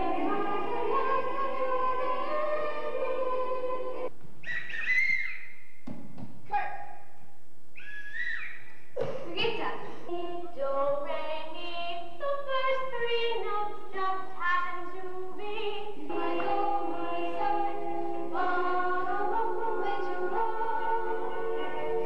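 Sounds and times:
children singing: 0.0 - 4.1, 12.4 - 22.0.

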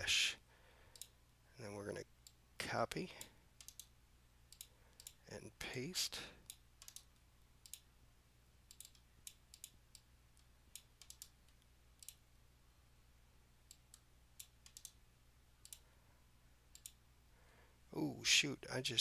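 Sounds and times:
low steady hum: 0.0 - 19.0
mouse clicking: 0.9 - 1.2, 3.6 - 3.9, 4.5 - 5.2, 6.4 - 7.9, 8.6 - 12.2, 13.7 - 15.0, 16.7 - 17.0.

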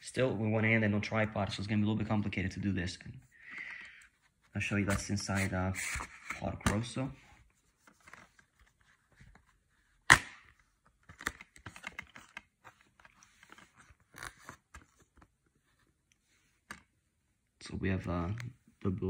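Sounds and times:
plastic case snapping open: 10.1 - 12.4.

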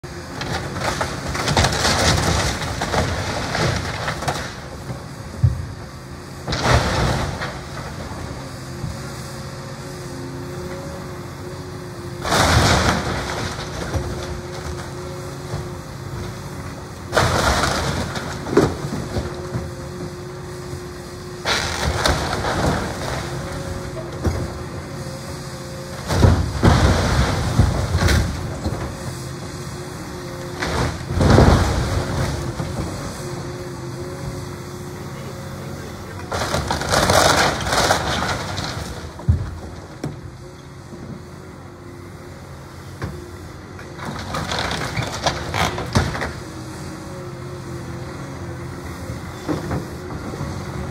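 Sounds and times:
excavator engine running: 0.0 - 50.9
boards splintering and crashing: 0.4 - 4.9, 6.4 - 8.2, 12.2 - 14.9, 17.1 - 19.7, 21.4 - 24.7, 26.0 - 28.9, 30.6 - 32.9, 36.3 - 40.2, 44.0 - 46.4.

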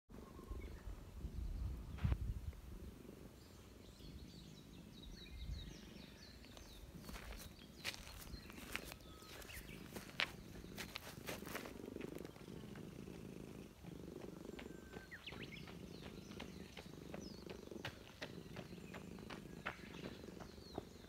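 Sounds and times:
small bird chirping: 0.2 - 21.0
rustling in dry grass: 6.4 - 13.1.

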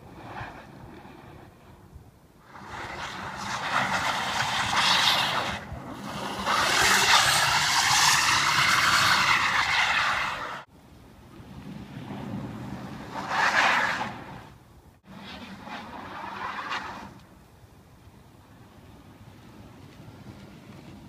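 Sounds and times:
tyres spinning in snow: 2.4 - 10.7, 11.5 - 17.2.

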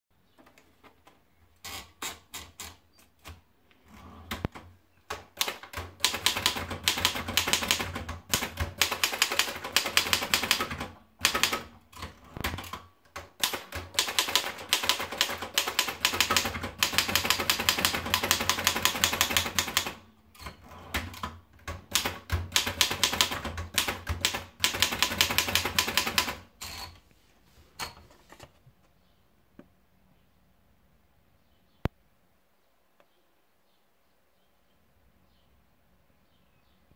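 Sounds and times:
typewriter keystrokes clacking: 4.4 - 26.9
typewriter paper roller clicks: 5.2 - 27.0.

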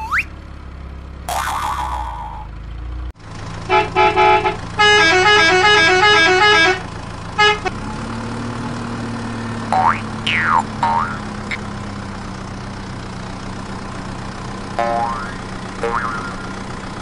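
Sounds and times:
engine-like hum: 0.0 - 17.0
horn honks: 3.6 - 7.8.

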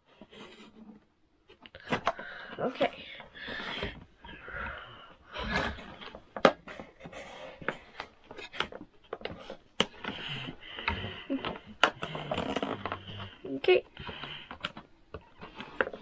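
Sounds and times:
cardboard rustling and scraping: 0.0 - 1.1, 5.4 - 16.0.

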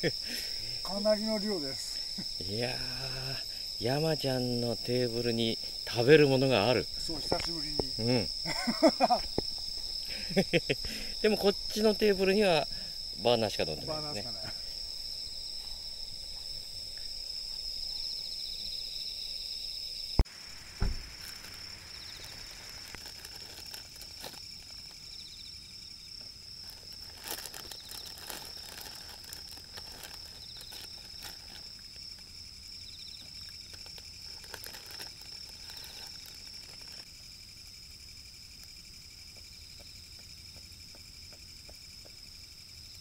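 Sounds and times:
night insects chirping: 0.0 - 43.0
plastic snack packet crinkling: 20.6 - 25.0, 26.6 - 31.8, 33.4 - 37.0
sharp knock: 20.8 - 21.1.

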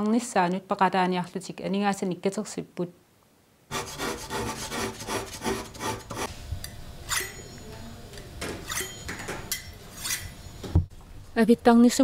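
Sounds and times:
blade scraping on honing rod: 3.7 - 6.3.

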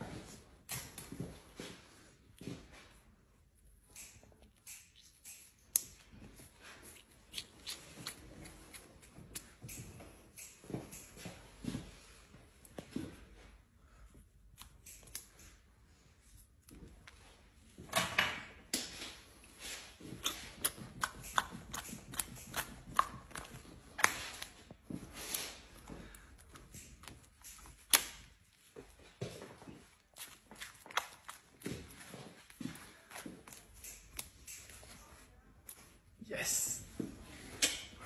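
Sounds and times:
face mask peeling off skin: 6.8 - 9.5, 30.0 - 31.6.

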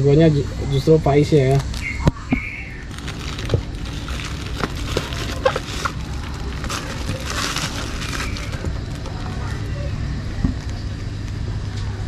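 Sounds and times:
sharp plastic crackles: 1.5 - 11.9
plastic bags crinkling: 2.8 - 9.9.

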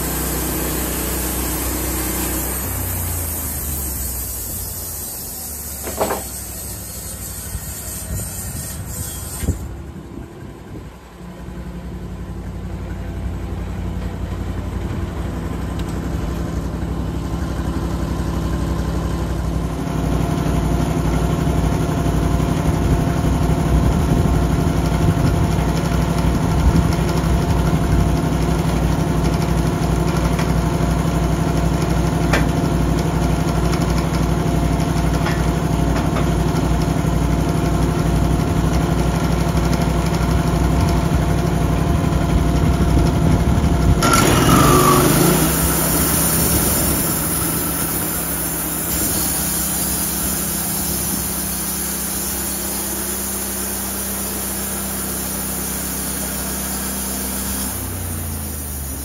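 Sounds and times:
harsh hiss: 0.0 - 9.2, 44.1 - 59.0
saw blade cutting wood: 0.0 - 9.8, 44.0 - 59.0
sawmill engine running: 0.0 - 59.0.

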